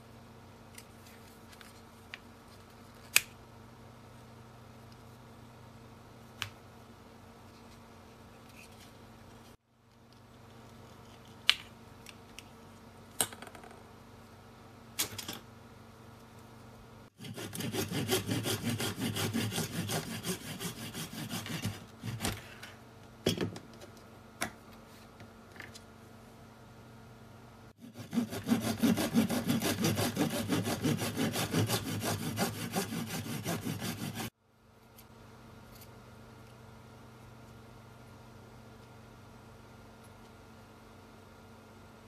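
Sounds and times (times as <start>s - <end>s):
hobby saw cutting plastic: 17.2s - 22.3s, 27.8s - 34.3s.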